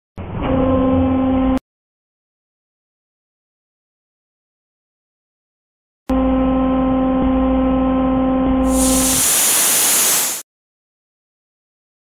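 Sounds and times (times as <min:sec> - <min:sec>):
hydraulic pump hum: 0:06.1 - 0:10.4
hydraulic hiss: 0:08.7 - 0:10.4.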